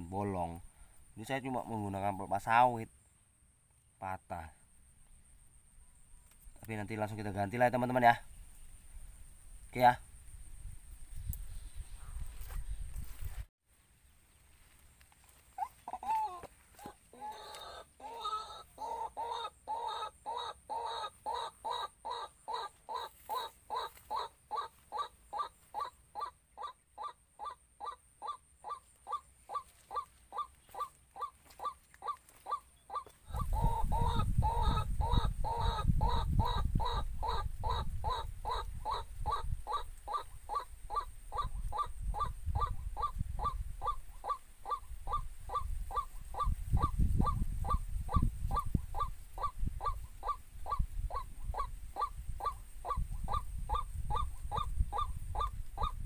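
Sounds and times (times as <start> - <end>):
waterhen croaking calls: 15.6 - 56.0.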